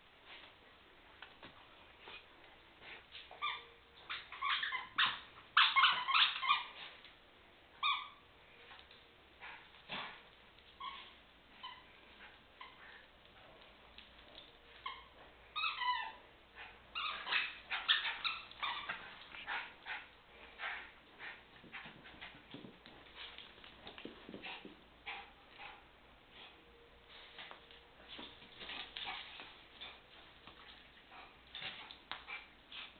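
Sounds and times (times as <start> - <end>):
dog whining and yipping: 3.3 - 6.8, 17.0 - 20.0.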